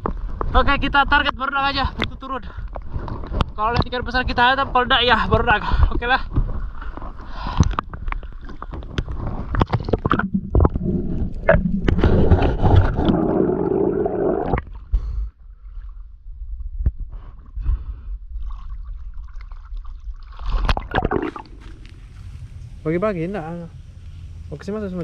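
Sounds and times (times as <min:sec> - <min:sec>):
water splashing and sloshing: 0:05.7 - 0:14.9, 0:18.2 - 0:22.9.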